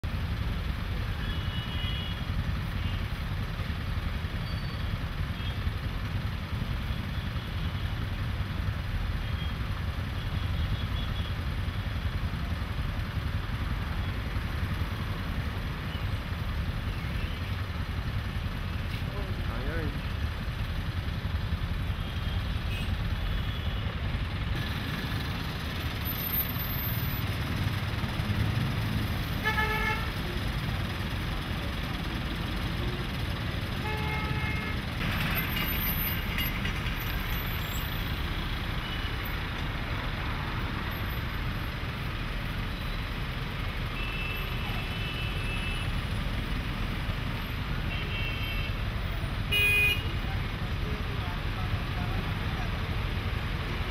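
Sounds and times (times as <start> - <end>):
heavy traffic engine rumble: 0.0 - 53.9
vehicle horns tooting: 29.4 - 30.2, 33.8 - 34.9, 49.5 - 50.2.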